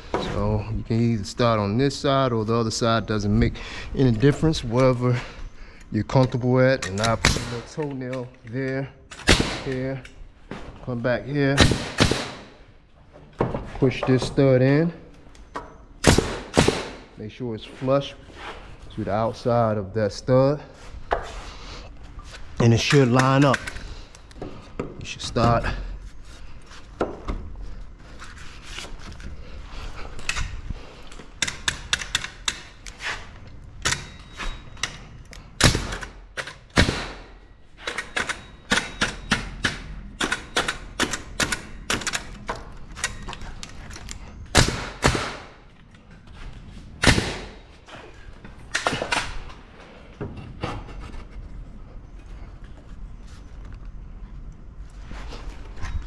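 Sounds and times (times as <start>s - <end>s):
nail gun shots: 7.0s - 7.7s, 9.1s - 9.9s, 11.5s - 12.6s, 16.0s - 17.2s, 35.6s - 42.3s, 44.5s - 45.6s, 47.0s - 47.6s.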